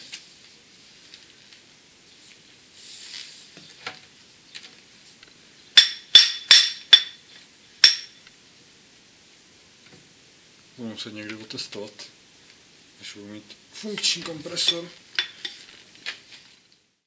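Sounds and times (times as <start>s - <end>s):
metallic clinks with ringing: 5.8s - 7.2s.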